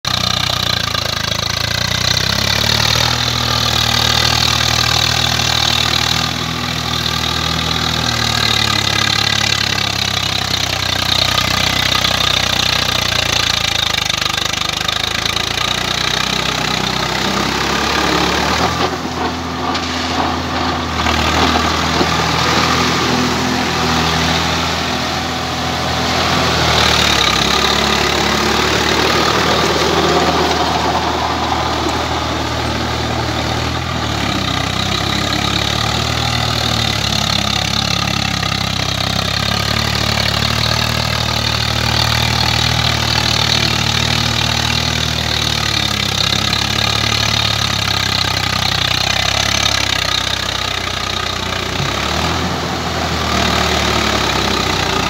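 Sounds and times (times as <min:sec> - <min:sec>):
tractor diesel engine under load: 0:00.0 - 0:55.0
rotavator churning wet soil: 0:17.1 - 0:37.8.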